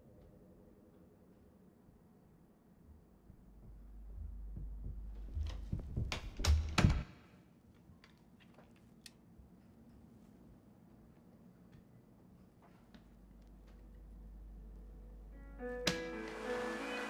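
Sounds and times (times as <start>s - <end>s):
door rattling and thudding: 5.0s - 7.2s.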